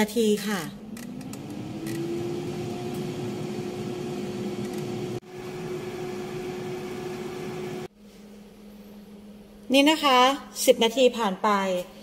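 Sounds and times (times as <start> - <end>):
air fryer motor hum: 0.8 - 7.9.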